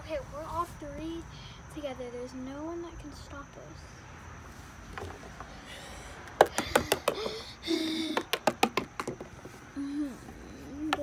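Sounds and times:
plastic figures tapping on wooden deck: 6.3 - 7.4, 8.0 - 9.4.

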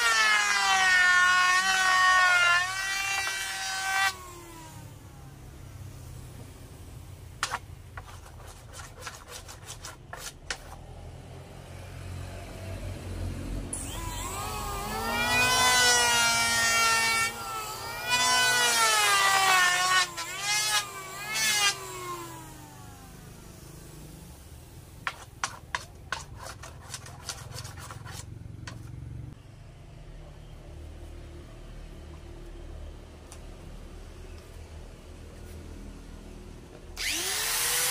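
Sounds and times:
electric planer shaving wood: 0.0 - 4.9, 13.8 - 24.0, 37.0 - 37.9.

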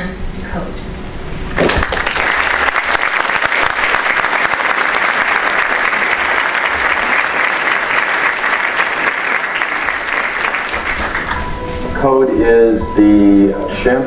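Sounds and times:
audience applauding: 1.6 - 11.8.

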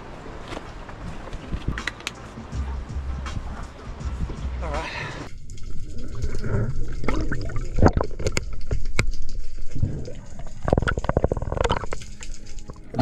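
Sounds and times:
sharp pops and clicks: 1.5 - 2.2, 7.0 - 12.8
water gurgling and bubbling: 5.3 - 13.0.

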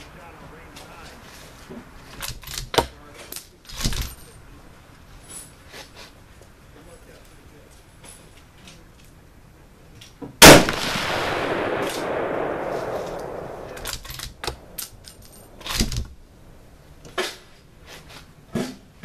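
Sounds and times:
rifle shot with long echo: 10.4 - 15.7.

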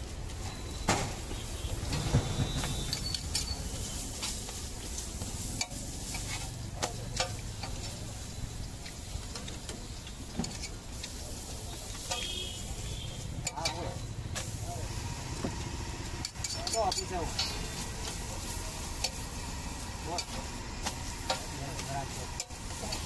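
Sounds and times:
flatbread sizzling on griddle: 0.0 - 23.0
metal spatula scraping griddle: 1.9 - 8.4, 16.2 - 23.0.

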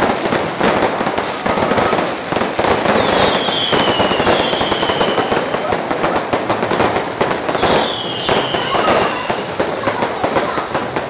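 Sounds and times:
firecrackers crackling: 0.0 - 11.0
falling high whistle: 2.9 - 5.5, 7.6 - 9.2.

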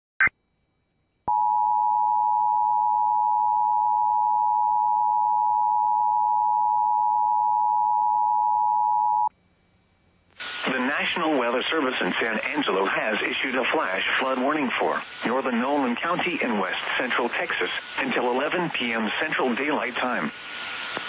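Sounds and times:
two-tone electronic beep: 1.3 - 9.3.

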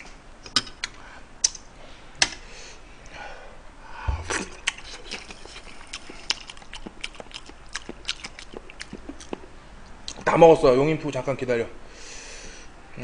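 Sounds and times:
lip smacks: 0.4 - 1.7, 4.2 - 10.3
chewing with wet mouth clicks: 4.3 - 10.3.

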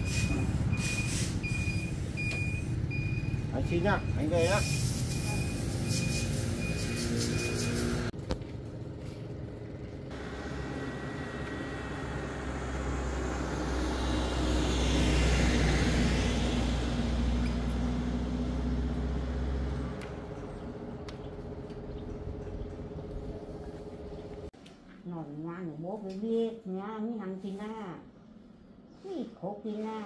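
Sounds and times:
van driving past: 8.6 - 23.9.

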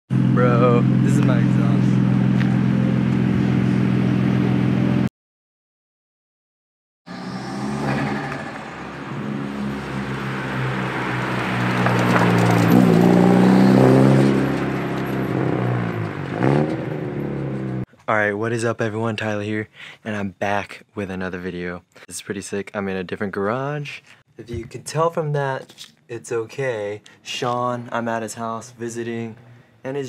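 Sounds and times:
car engine revving: 0.1 - 5.1, 7.1 - 17.9.

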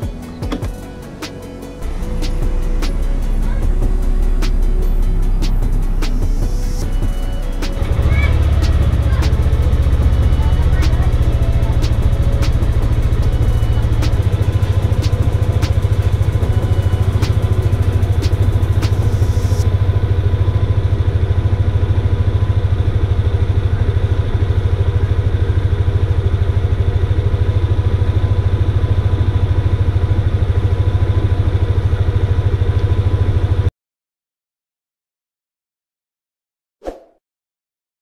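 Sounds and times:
scooter engine idling: 0.0 - 33.7.

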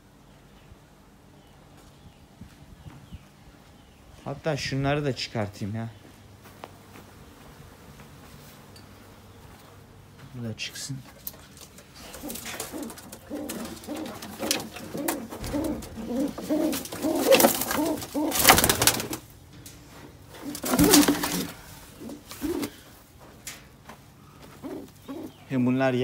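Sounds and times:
birds rustling and scuffling: 1.1 - 26.0
pigeons cooing: 11.4 - 19.3, 20.2 - 23.0, 24.2 - 26.0.

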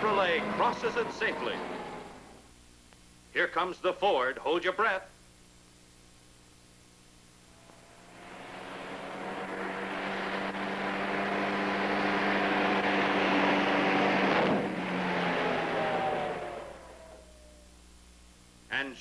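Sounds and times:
pickup truck engine drone: 0.0 - 2.5, 7.5 - 17.8
tire noise on dirt road: 7.5 - 17.3.

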